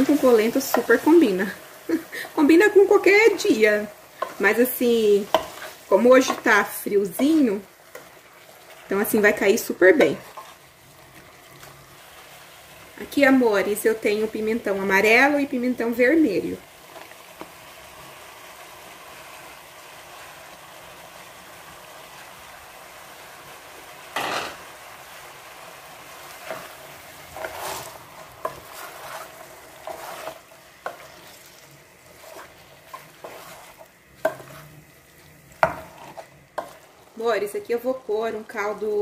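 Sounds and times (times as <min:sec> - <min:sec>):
chicken sizzling in a pot: 0:00.0 - 0:39.0
spoon scraping a pot: 0:05.2 - 0:06.6, 0:09.9 - 0:10.7, 0:26.4 - 0:34.8, 0:35.5 - 0:36.9.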